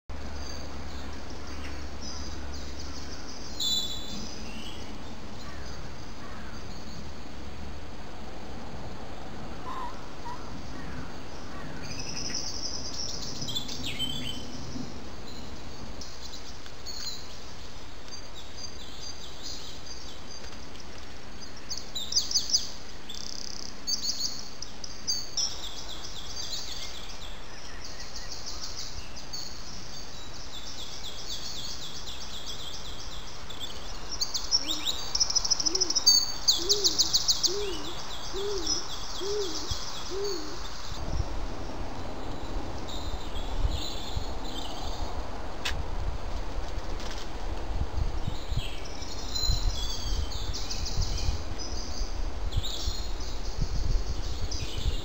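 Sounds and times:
songbirds trilling: 0:00.2 - 0:07.3, 0:09.4 - 0:20.6, 0:21.4 - 0:45.2.

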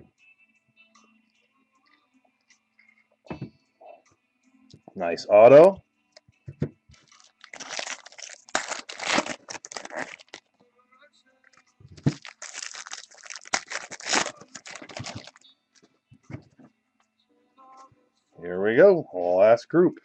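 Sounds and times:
wrappers crinkling and tearing: 0:07.0 - 0:10.4, 0:12.0 - 0:15.4.

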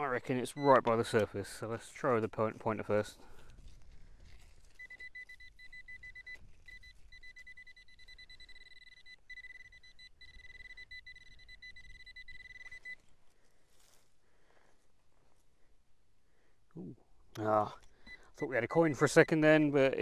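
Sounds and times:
pinpointer probe beeping: 0:00.4 - 0:01.3, 0:04.6 - 0:13.0, 0:17.4 - 0:19.8.

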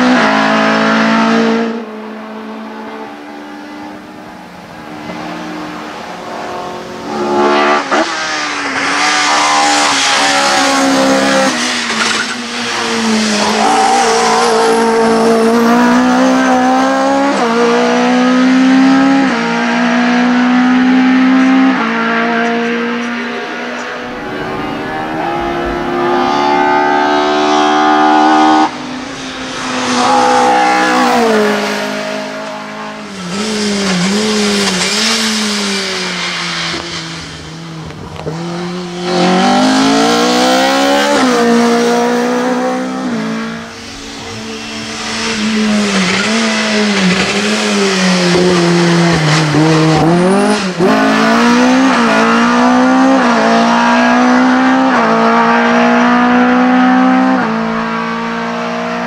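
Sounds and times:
race car engine at full throttle: 0:00.0 - 0:59.0.

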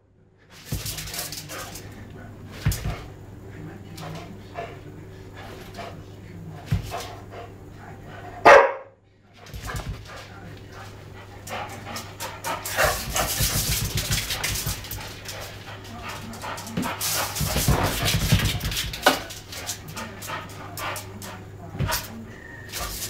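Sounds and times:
dog barking: 0:08.4 - 0:09.0.

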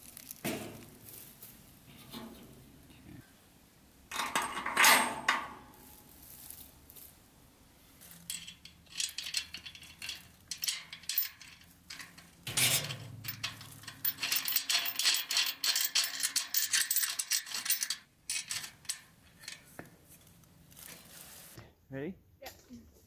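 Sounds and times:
metal hardware clicking and rattling: 0:04.1 - 0:05.7, 0:08.0 - 0:20.5.

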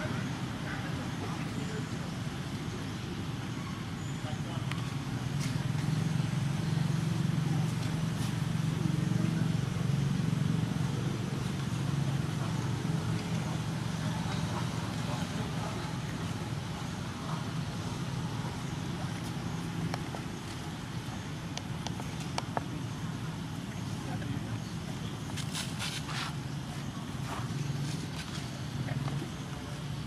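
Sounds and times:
motor engine humming: 0:04.6 - 0:30.0.

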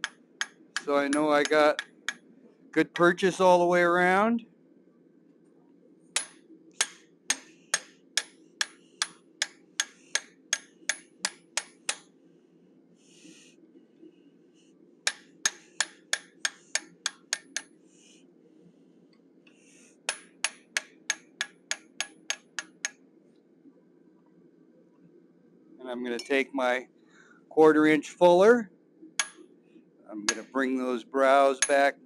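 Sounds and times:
hammer striking hot steel: 0:06.2 - 0:12.1, 0:15.1 - 0:17.7, 0:20.1 - 0:23.0, 0:30.3 - 0:30.5.

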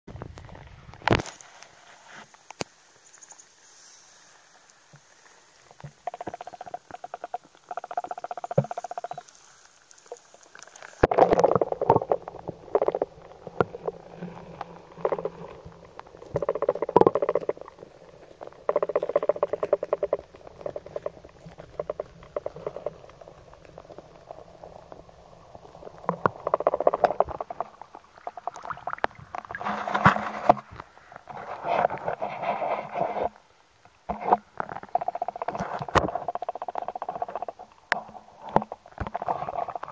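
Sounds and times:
water bubbling underwater: 0:05.8 - 0:30.8.

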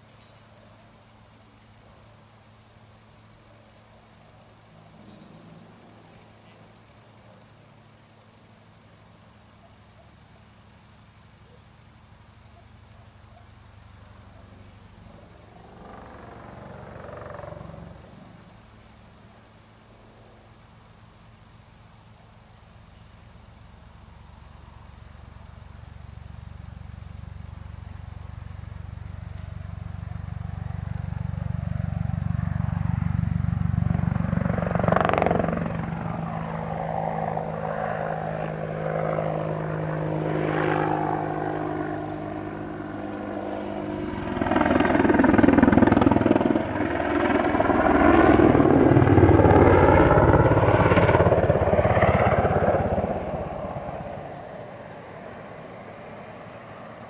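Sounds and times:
helicopter rotor and engines: 0:12.4 - 0:18.8, 0:25.9 - 0:57.0.

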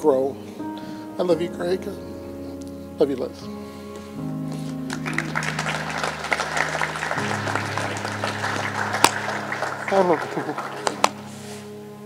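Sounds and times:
soft music of slow held chords: 0:00.0 - 0:12.0
guests applauding: 0:04.8 - 0:11.4.

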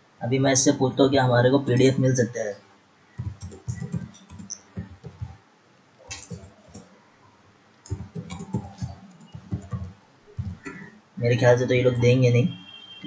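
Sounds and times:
computer keyboard typing: 0:03.2 - 0:05.4, 0:06.1 - 0:06.9, 0:07.8 - 0:10.8.

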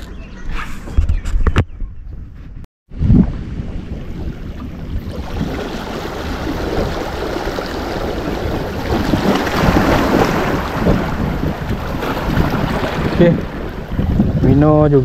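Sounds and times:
wind rumbling on microphone: 0:00.0 - 0:15.0
waves splashing over rocks: 0:05.1 - 0:14.1.

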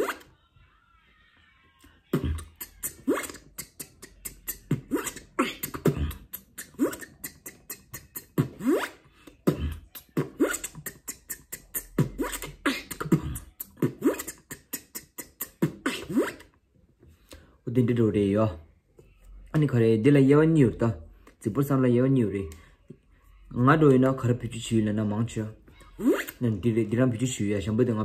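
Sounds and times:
beatboxing zipper sounds: 0:00.0 - 0:00.3, 0:02.1 - 0:16.6, 0:25.9 - 0:26.6
mouth clicks: 0:02.1 - 0:16.6.

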